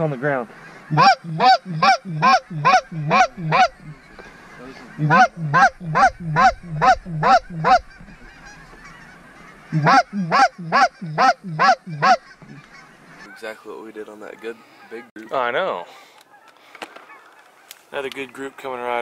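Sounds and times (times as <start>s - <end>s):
goose call honks: 0.7s - 13.6s.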